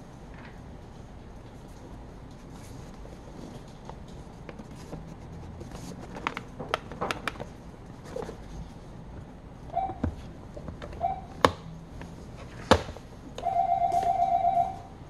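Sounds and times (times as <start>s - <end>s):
hands rubbing plastic case: 4.0s - 8.6s.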